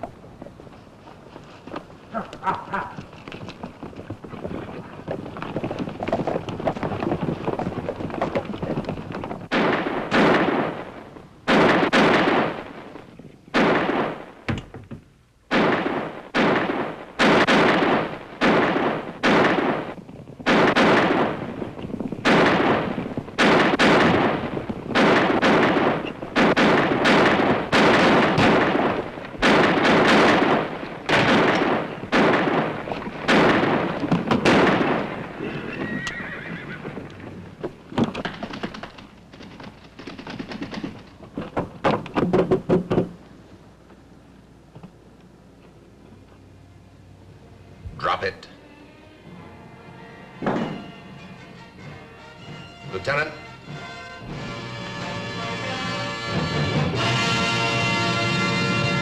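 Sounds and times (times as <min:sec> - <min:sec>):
horses hoofbeats: 0:00.0 - 0:13.5, 0:18.1 - 0:43.3, 0:49.3 - 0:59.0
gunshots with ringing tail: 0:09.5 - 0:14.5, 0:15.5 - 0:35.5.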